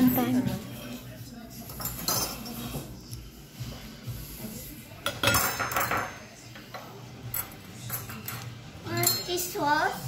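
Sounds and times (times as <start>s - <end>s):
plates and cutlery clattering: 0.0s - 3.1s, 4.9s - 9.7s.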